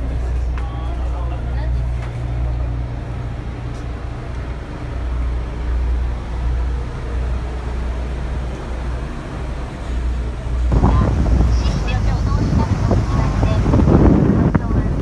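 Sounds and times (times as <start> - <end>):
boat engine droning: 0.0 - 15.0
wind rushing on microphone: 10.1 - 15.0.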